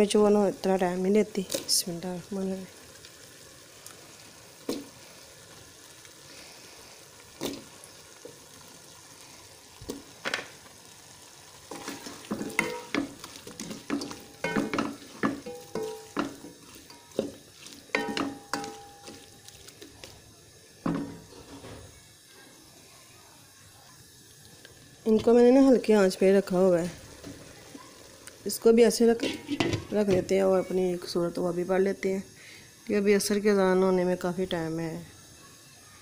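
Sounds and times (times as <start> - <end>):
faint sizzle of food cooking: 0.0 - 36.0
spoon clinking and scraping pot: 11.7 - 19.6, 29.2 - 30.2.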